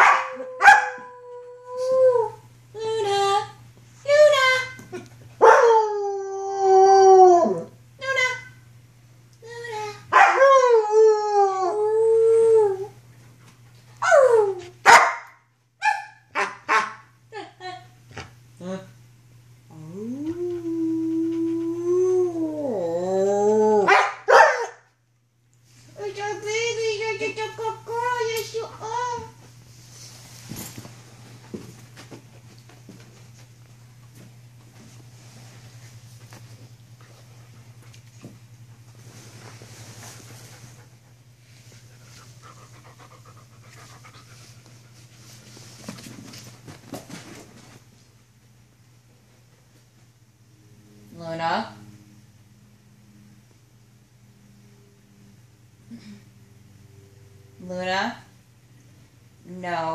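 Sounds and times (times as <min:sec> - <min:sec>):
wolfdog barking: 0:00.0 - 0:01.0, 0:10.1 - 0:10.4, 0:14.8 - 0:17.0, 0:23.9 - 0:24.8
puppy panting fast: 0:41.8 - 0:45.0.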